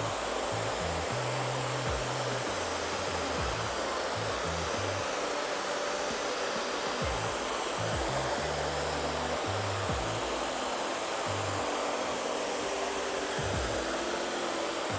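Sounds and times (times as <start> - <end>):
background music with bass line: 0.0 - 5.0, 7.0 - 10.6, 13.4 - 14.0
hair dryer hissing: 0.0 - 14.9.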